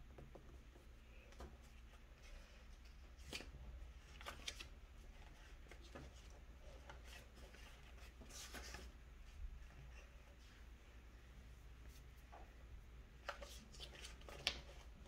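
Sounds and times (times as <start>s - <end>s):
low room hum: 0.0s - 15.0s
paper rustling: 1.7s - 9.0s, 13.2s - 15.0s.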